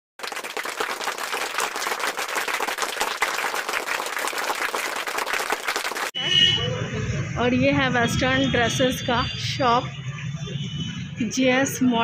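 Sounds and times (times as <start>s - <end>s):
crowd applauding: 0.2s - 6.2s.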